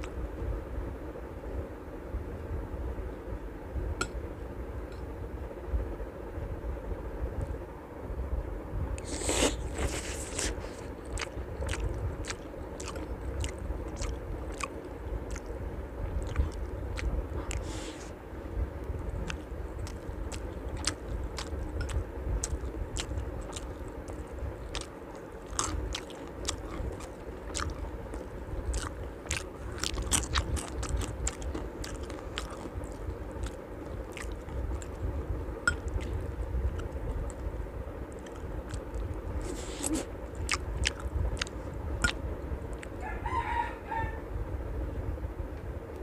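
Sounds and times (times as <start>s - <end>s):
steady low hum: 0.0s - 46.0s
person chewing food: 9.0s - 18.2s, 18.8s - 37.5s, 38.1s - 43.0s.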